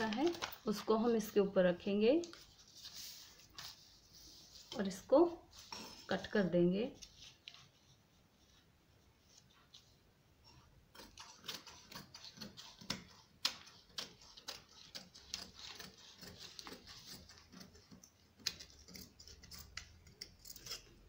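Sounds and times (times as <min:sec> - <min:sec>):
scissors snipping cloth: 0:10.9 - 0:21.0.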